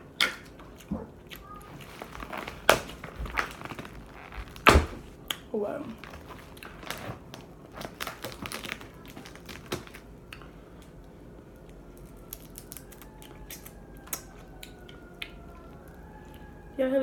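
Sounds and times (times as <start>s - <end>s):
crab shells cracking: 1.4s - 16.6s
distant ambulance siren: 11.2s - 17.0s.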